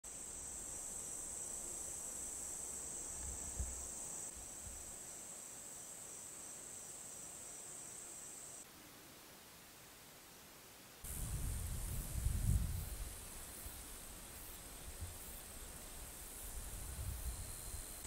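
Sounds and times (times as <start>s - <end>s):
insects chirping: 0.0s - 8.7s, 11.0s - 18.0s.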